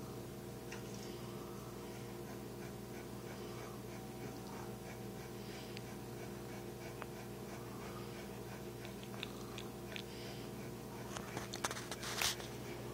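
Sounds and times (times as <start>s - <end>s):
steady low hum: 0.0s - 12.9s
dog panting quietly: 1.2s - 12.9s
cat licking fur: 7.3s - 10.1s.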